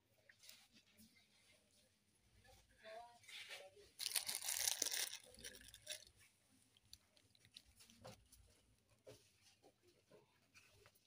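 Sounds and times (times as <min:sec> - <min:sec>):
plastic wrappers crinkling: 0:03.9 - 0:08.6
faint taps and rustles: 0:06.2 - 0:11.0.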